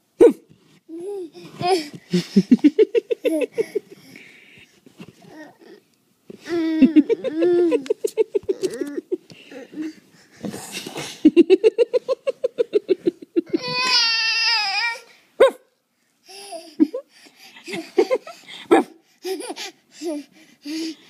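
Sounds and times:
baby laughing: 6.5s - 9.9s.

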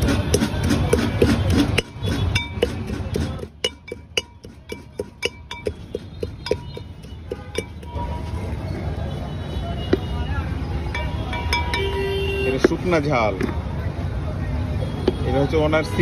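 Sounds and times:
stone pestle pounding in mortar: 0.0s - 8.2s.

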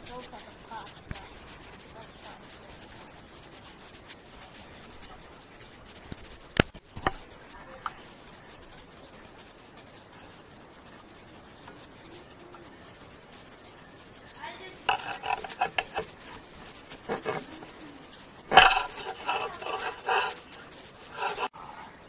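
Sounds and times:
hands pressing clay: 13.6s - 21.6s.

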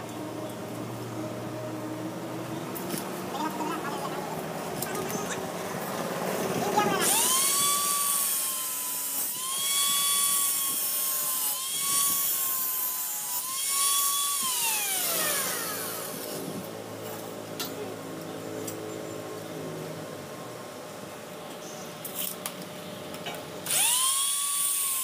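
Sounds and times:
power tool motor whining: 4.8s - 17.5s, 23.6s - 25.0s.

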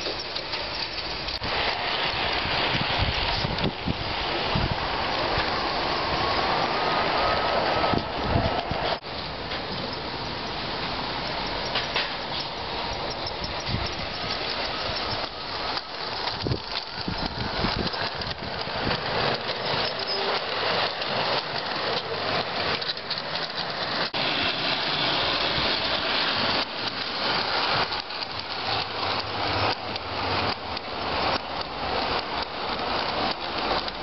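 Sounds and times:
model train wheels on rail: 0.0s - 34.0s
clicks over rail joints: 11.2s - 24.2s, 25.8s - 34.0s.

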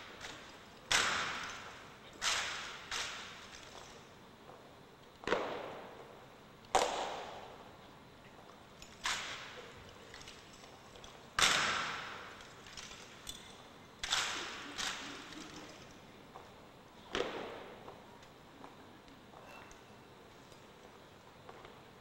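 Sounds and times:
rifles slapped in unison: 0.2s - 3.4s, 5.2s - 5.8s, 6.8s - 7.4s, 11.4s - 12.4s, 14.0s - 15.4s.

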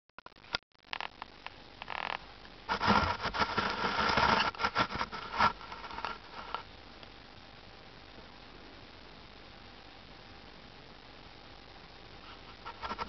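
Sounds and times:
low hiss: 1.2s - 13.0s
close rustling and scraping: 1.8s - 6.7s, 12.2s - 13.0s.

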